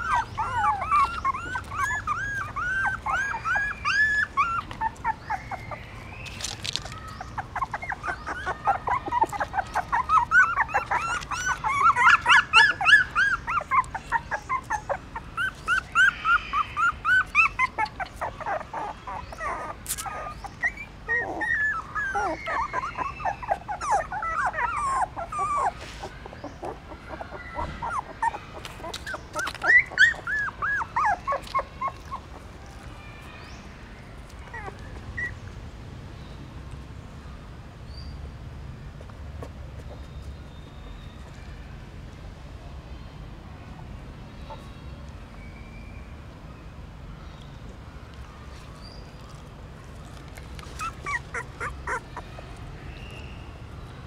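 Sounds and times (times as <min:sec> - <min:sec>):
puppies whimpering: 0:00.0 - 0:33.0, 0:34.2 - 0:35.5, 0:48.1 - 0:53.4.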